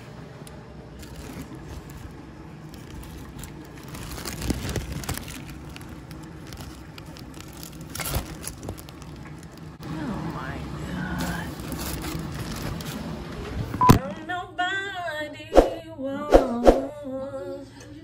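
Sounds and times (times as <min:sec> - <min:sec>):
plastic bag crinkling: 0:01.0 - 0:09.8, 0:11.3 - 0:13.1.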